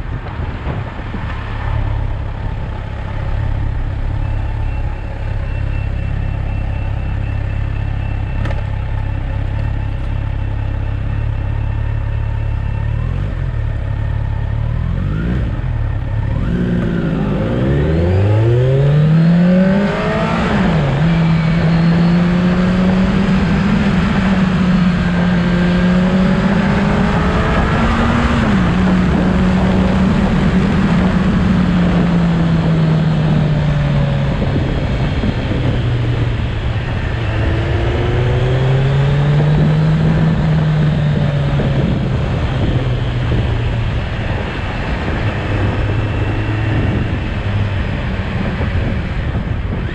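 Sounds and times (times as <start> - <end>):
motorcycle engine revving: 11.3 - 49.9.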